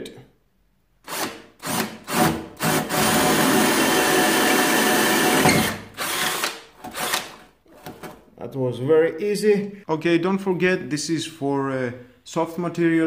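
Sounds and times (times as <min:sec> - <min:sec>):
cordless drill drilling into wall: 0:01.0 - 0:07.5.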